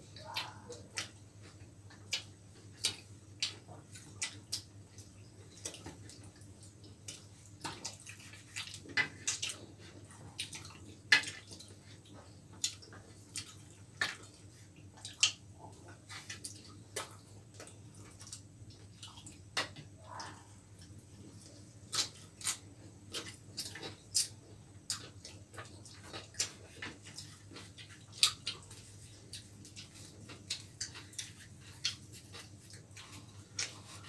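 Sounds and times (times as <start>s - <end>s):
faint low hum: 0.0s - 34.0s
people chewing food: 0.0s - 34.0s.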